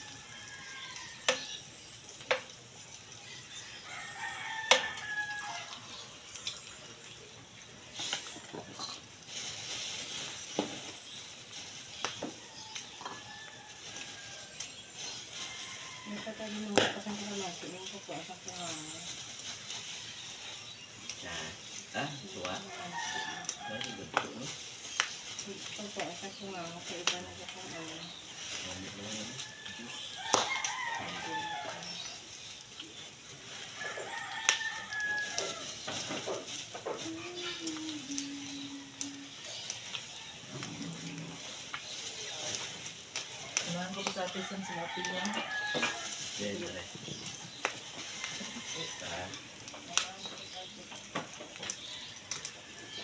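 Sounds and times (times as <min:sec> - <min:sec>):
rooster crowing: 0:00.0 - 0:01.6, 0:03.4 - 0:06.0, 0:15.4 - 0:16.6, 0:22.6 - 0:24.2, 0:29.2 - 0:32.0, 0:33.7 - 0:35.8, 0:44.2 - 0:46.2, 0:48.0 - 0:49.4
plastic bag crinkling: 0:07.8 - 0:53.0.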